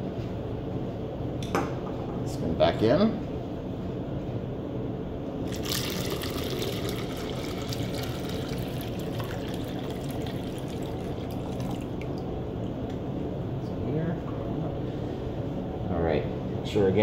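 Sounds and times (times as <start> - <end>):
water pouring into plastic bottle: 5.5 - 12.2.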